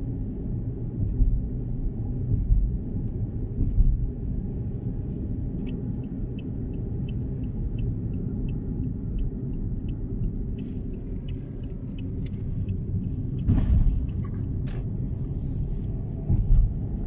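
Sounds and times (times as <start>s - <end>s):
car road and engine rumble: 0.0s - 17.0s
faint regular ticking: 5.4s - 14.7s.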